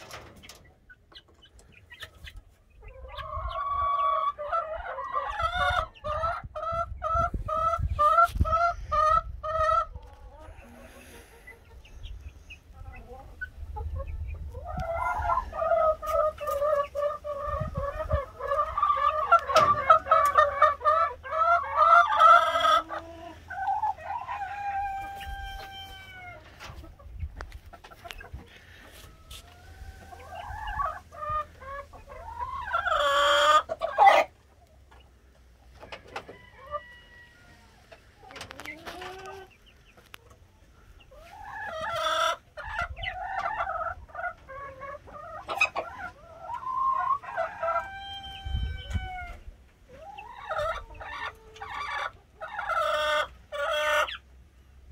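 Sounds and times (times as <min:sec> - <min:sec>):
chicks peeping and clucking: 0:00.0 - 0:54.9
rooster crowing: 0:36.0 - 0:37.7.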